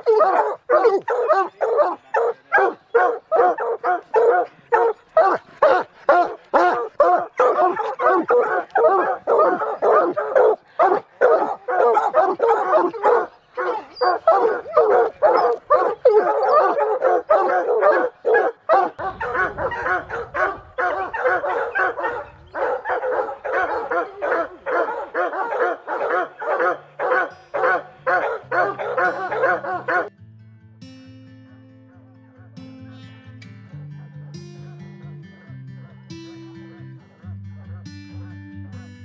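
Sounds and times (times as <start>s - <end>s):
hounds barking rapidly: 0.0s - 30.1s
music: 25.3s - 39.0s.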